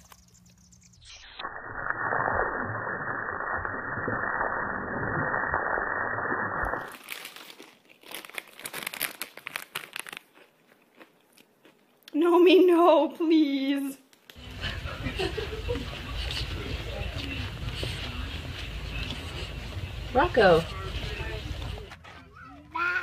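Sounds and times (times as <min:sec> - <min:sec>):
dry crinkling and clicking: 0:06.9 - 0:10.5
garden hose spraying water: 0:14.4 - 0:21.6.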